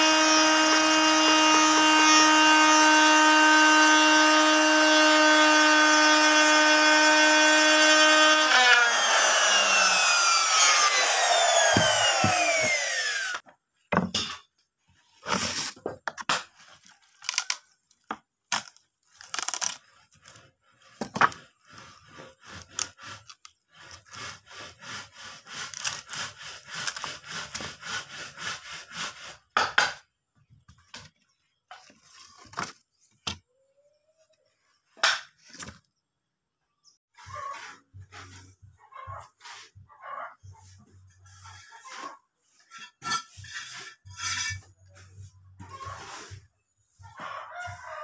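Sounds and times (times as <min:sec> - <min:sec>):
wood scraping and cracking: 0:16.4 - 0:24.3.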